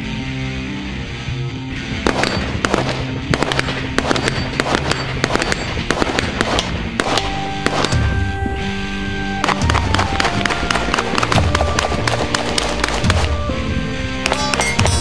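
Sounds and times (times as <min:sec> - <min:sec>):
background music: 0:00.0 - 0:15.0
rapid gunshots: 0:02.0 - 0:08.3, 0:09.4 - 0:13.5.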